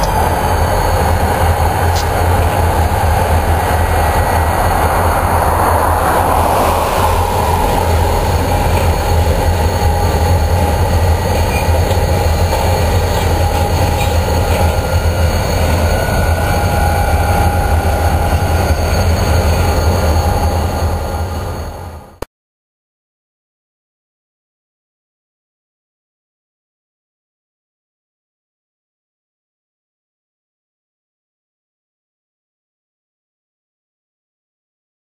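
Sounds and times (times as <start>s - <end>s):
train wheels squealing: 0.0s - 22.2s
freight train rumbling: 0.0s - 22.3s.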